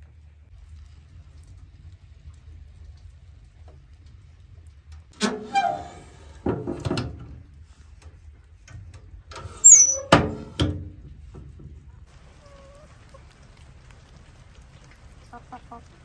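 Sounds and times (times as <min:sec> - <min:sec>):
stove doors clanking shut: 0:05.2 - 0:07.3.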